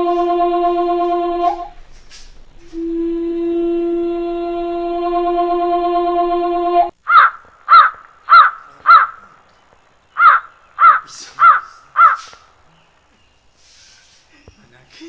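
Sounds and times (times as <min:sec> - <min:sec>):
long held musical note: 0:00.0 - 0:06.9
crow cawing: 0:07.0 - 0:09.4, 0:10.1 - 0:12.6.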